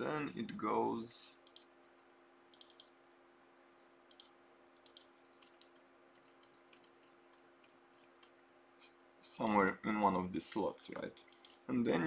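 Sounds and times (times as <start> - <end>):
low steady hum: 0.0 - 12.0
computer mouse clicks: 1.4 - 2.9, 4.1 - 8.4, 11.2 - 11.6.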